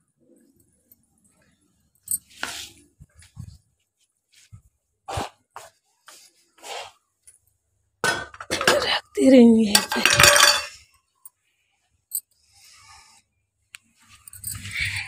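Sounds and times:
metal pots clanking on concrete: 0:08.0 - 0:09.0, 0:09.8 - 0:10.8.

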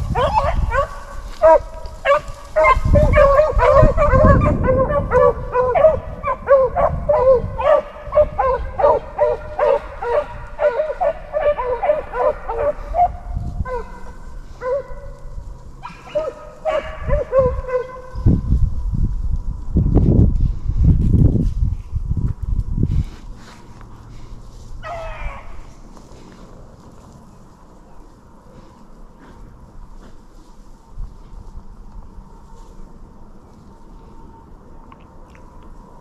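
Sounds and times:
beagles baying: 0:00.0 - 0:18.5, 0:23.4 - 0:30.5.

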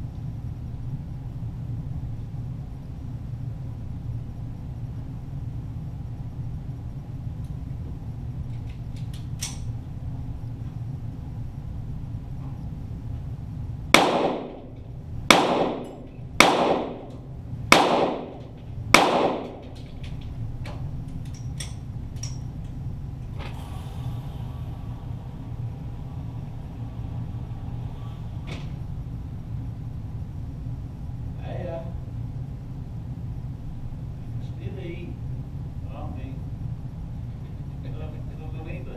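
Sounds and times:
pistol shots with echo: 0:14.0 - 0:19.8.

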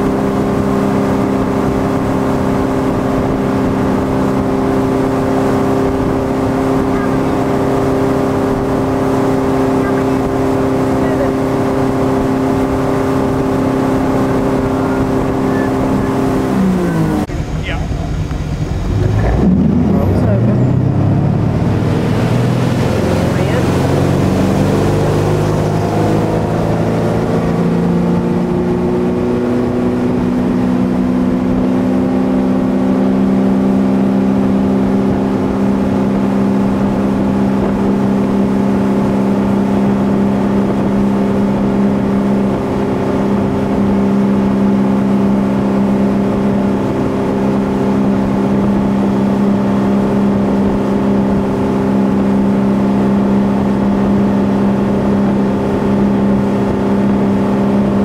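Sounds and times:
boat engine running: 0:00.0 - 0:58.0
rush of boat wake: 0:00.0 - 0:58.0.

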